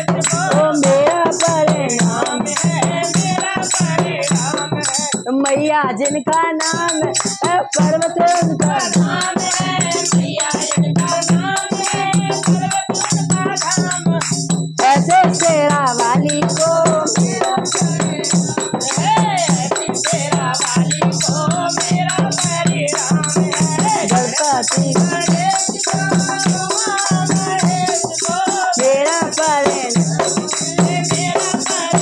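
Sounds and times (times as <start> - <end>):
boy singing: 0.0 - 32.0
hand drum beat: 0.0 - 32.0
small hand cymbals: 0.0 - 32.0
women singing: 0.0 - 32.0
clapper rattle shaken: 20.6 - 32.0.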